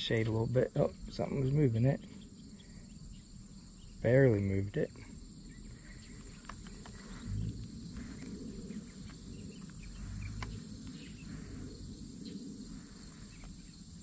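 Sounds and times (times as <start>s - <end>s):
high-pitched insect drone: 5.1s - 14.0s
wind rumbling on microphone: 5.4s - 14.0s
faint clicks: 6.1s - 8.3s, 9.0s - 11.0s.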